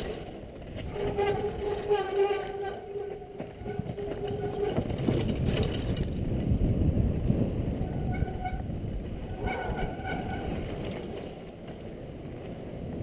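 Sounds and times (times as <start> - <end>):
tyre noise: 0.0 - 6.6
mountain bike rattling over dirt trail: 0.0 - 13.0
brake squeal: 0.9 - 5.2, 8.0 - 8.7, 9.3 - 11.3
wind rush: 3.3 - 13.0.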